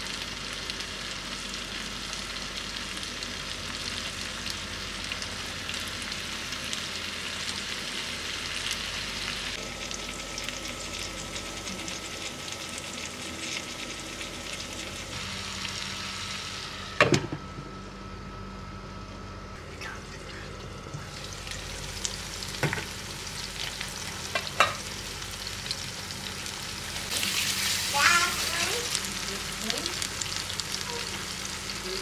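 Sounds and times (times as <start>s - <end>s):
vegetables sizzling in a frying pan: 0.0s - 17.4s, 21.1s - 32.0s.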